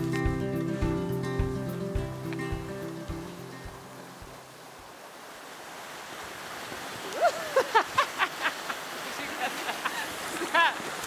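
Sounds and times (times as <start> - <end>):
woman laughing: 7.0 - 10.9.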